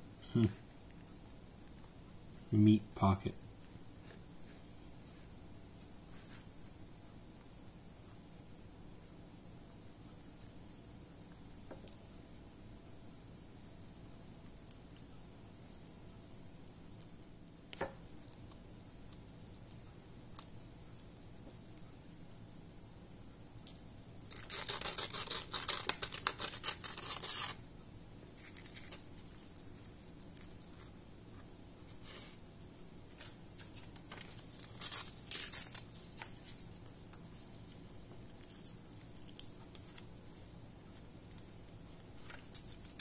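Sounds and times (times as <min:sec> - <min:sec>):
paper tearing rasp: 0:24.3 - 0:27.6
paper rustling: 0:24.3 - 0:31.0, 0:33.1 - 0:43.0.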